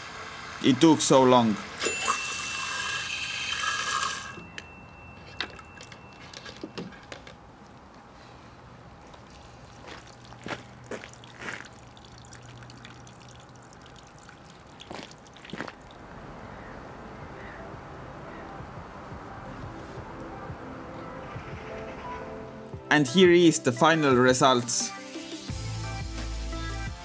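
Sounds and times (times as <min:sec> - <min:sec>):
water gushing from hose: 0:00.0 - 0:04.4, 0:09.1 - 0:16.0
water drips and trickles: 0:05.3 - 0:06.1, 0:08.9 - 0:16.1.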